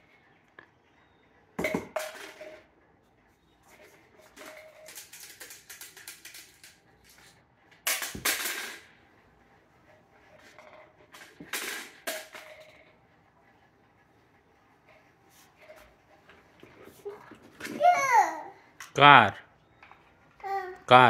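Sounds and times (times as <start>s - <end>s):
toys clattering on hard floor: 1.6s - 2.7s, 3.7s - 9.0s, 10.3s - 13.0s, 15.6s - 19.0s.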